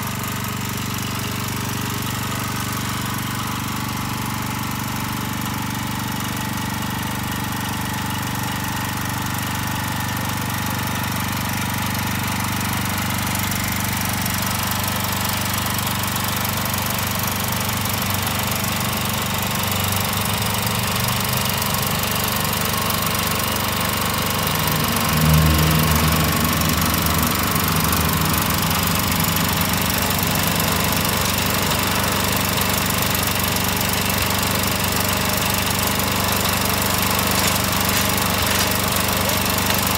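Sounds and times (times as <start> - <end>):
tiller engine running: 0.0 - 39.9.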